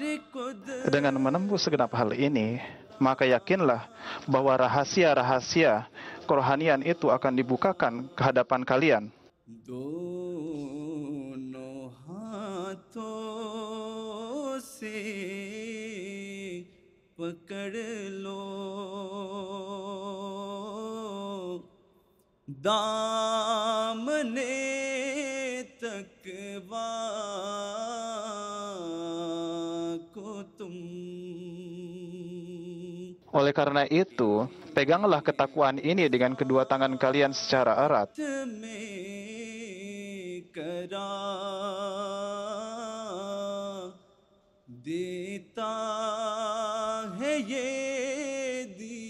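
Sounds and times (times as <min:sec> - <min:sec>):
man chanting unaccompanied: 0:00.0 - 0:09.2, 0:25.5 - 0:44.0.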